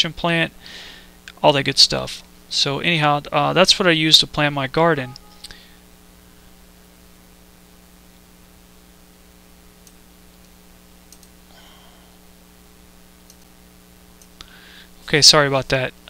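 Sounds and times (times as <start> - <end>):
low electrical hum and hiss: 0.0 - 16.0
computer mouse clicks: 11.1 - 11.4, 13.2 - 13.5.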